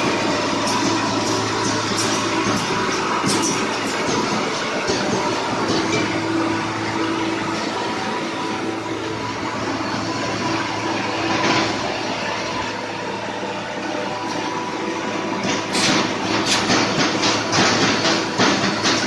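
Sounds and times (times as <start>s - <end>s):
welding machine humming: 0.0s - 19.0s
welding head clacks: 15.5s - 19.0s.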